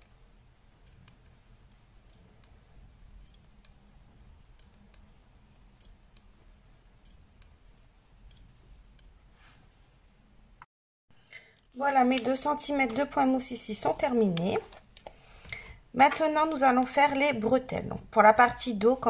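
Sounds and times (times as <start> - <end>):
knitting needles clicking: 0.0 - 9.2.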